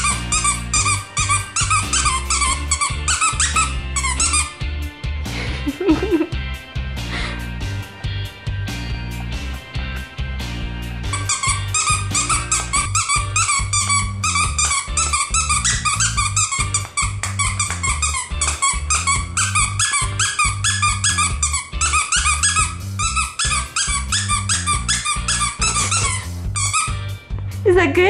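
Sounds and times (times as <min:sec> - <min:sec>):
dog toy squeaking: 0:00.0 - 0:04.6, 0:11.1 - 0:27.1
background music: 0:00.0 - 0:28.0.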